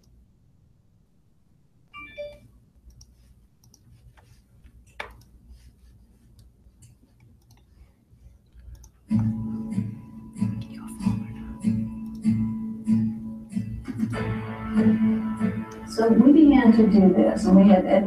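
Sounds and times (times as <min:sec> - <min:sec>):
low steady hum: 0:00.0 - 0:18.0
brief tone: 0:01.9 - 0:02.5
scattered clicks and taps: 0:02.9 - 0:05.4.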